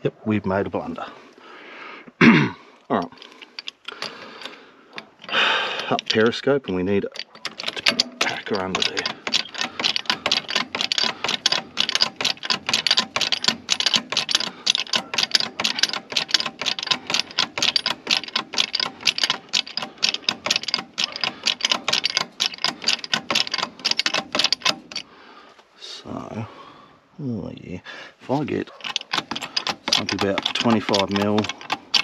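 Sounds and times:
hydraulic jack clicking: 3.3s - 6.3s, 7.1s - 25.1s, 28.7s - 32.0s.

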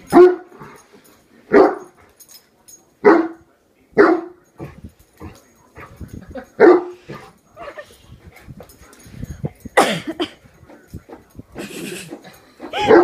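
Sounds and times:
dog barking: 0.1s - 0.6s, 1.5s - 2.0s, 3.0s - 3.4s, 4.0s - 4.4s, 6.6s - 7.2s, 12.7s - 13.0s.

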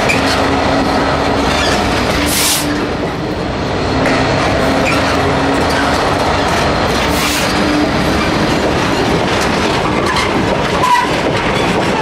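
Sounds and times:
diesel locomotive engine: 0.0s - 12.0s
wheels clattering over rail joints: 1.3s - 3.0s, 4.1s - 12.0s
wheels squealing on track: 1.5s - 2.7s, 9.8s - 12.0s.

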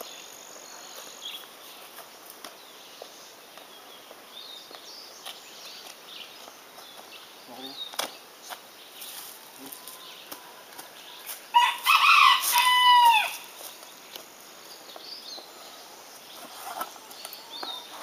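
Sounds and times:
rooster crowing: 11.5s - 13.5s.

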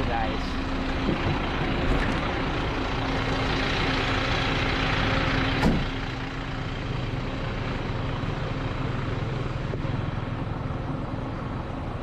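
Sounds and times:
fire truck engine idling: 0.0s - 12.0s.

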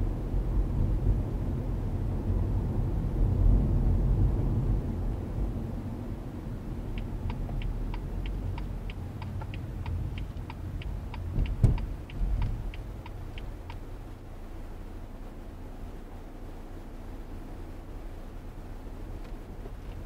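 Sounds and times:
road rumble inside car: 0.0s - 20.0s
turn signal ticking: 6.8s - 14.1s, 19.1s - 20.0s.

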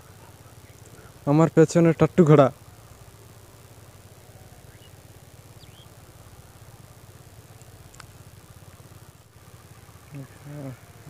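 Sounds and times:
small engine humming: 0.0s - 11.0s
high bird chirps: 4.4s - 6.0s.

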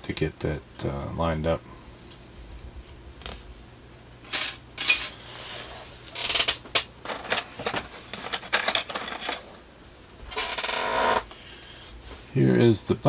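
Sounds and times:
plastic parts clicking and rattling: 6.0s - 9.6s
small bell ringing: 9.4s - 10.3s.

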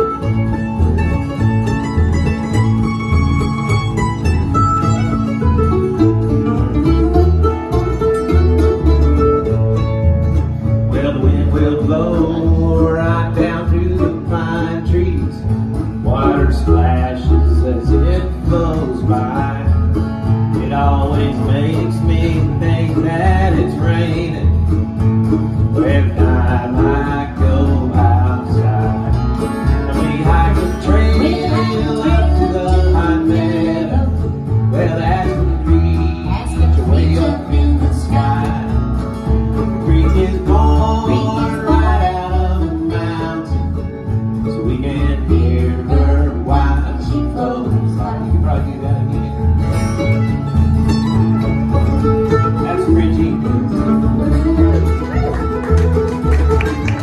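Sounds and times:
acoustic string band playing: 0.0s - 57.0s
person singing: 29.8s - 38.8s, 39.8s - 43.6s, 44.6s - 49.2s.

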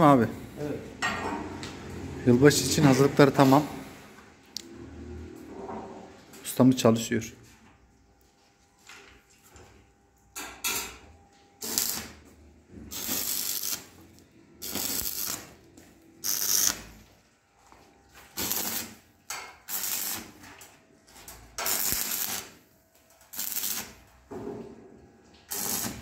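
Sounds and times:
arc welding crackling hiss: 11.6s - 12.2s, 12.9s - 14.0s, 14.6s - 15.6s, 16.2s - 17.0s, 18.3s - 20.4s, 21.6s - 22.6s, 23.2s - 24.0s, 25.5s - 26.0s.

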